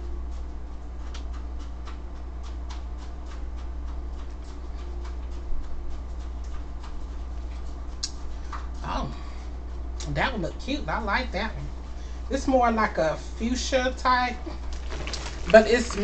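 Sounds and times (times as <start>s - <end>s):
steady low hum: 0.0s - 16.0s
lip gloss clicks and ticks: 0.9s - 8.7s.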